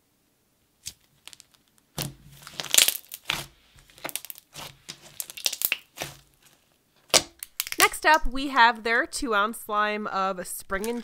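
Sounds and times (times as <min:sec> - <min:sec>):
slime crackling and popping: 0:00.8 - 0:08.3, 0:10.7 - 0:11.0.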